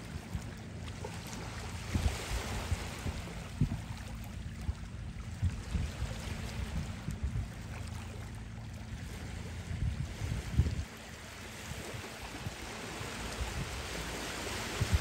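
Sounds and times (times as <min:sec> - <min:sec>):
waves lapping over stones: 0:00.0 - 0:04.0, 0:07.6 - 0:15.0
wind buffeting microphone: 0:01.7 - 0:15.0.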